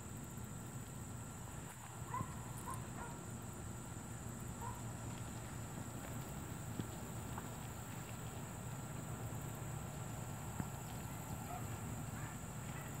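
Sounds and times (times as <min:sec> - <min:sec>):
sheep hooves on paved road: 0:04.6 - 0:13.0.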